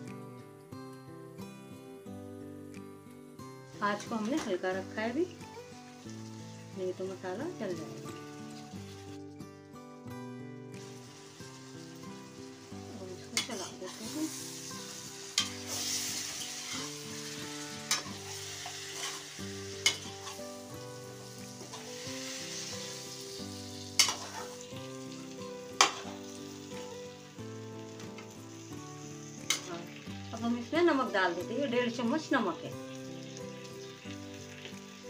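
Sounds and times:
vegetables sizzling in oil: 0:03.4 - 0:09.5, 0:10.2 - 0:35.0
metal spatula clinking on pan: 0:13.4 - 0:14.0, 0:17.9 - 0:18.2, 0:19.8 - 0:20.4, 0:24.0 - 0:24.5, 0:25.8 - 0:26.1.

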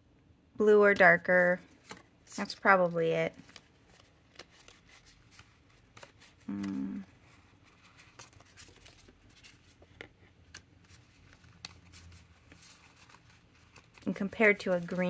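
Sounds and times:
paper rustling: 0:01.6 - 0:15.0
person humming: 0:06.5 - 0:07.1.

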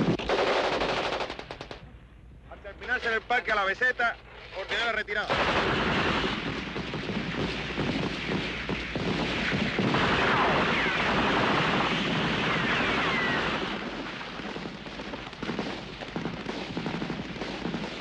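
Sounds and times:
rapid gunfire: 0:00.0 - 0:01.8, 0:05.3 - 0:18.0
rushing blast: 0:05.3 - 0:14.4.

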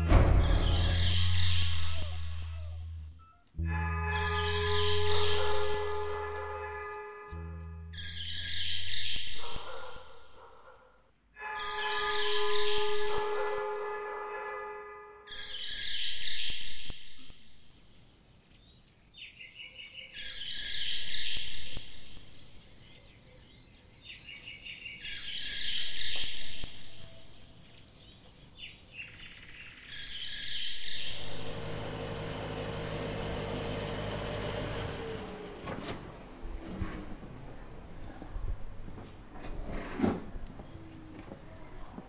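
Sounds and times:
noisy drone with low tone: 0:00.0 - 0:08.6.

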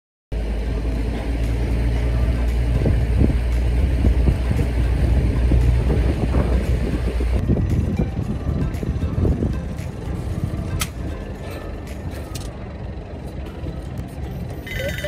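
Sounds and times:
boat engine droning: 0:00.3 - 0:15.0
wind noise: 0:02.2 - 0:12.2.

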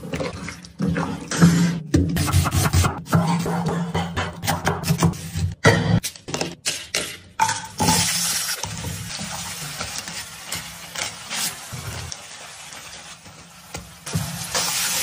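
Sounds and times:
vegetables sizzling in hot oil: 0:07.8 - 0:15.0.

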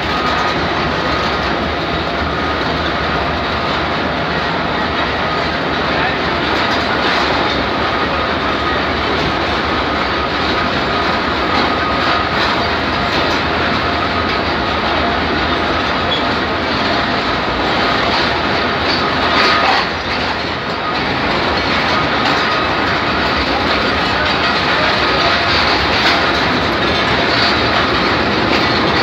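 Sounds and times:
train rumble: 0:00.0 - 0:29.0
wheels clattering over rail joints: 0:00.0 - 0:29.0.

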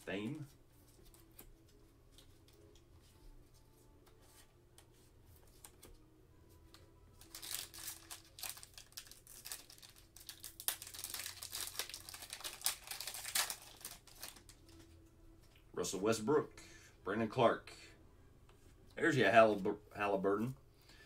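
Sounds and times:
foil wrapper crinkling and tearing: 0:07.2 - 0:14.8.

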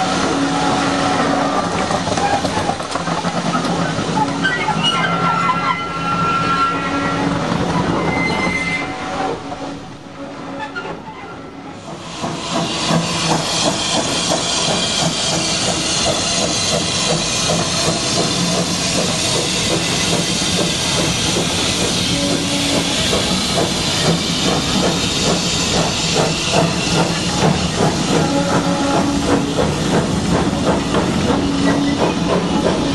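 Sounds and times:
steam hissing: 0:00.0 - 0:10.0, 0:11.6 - 0:32.9
high wheel squeal: 0:03.6 - 0:09.8, 0:10.5 - 0:30.0.

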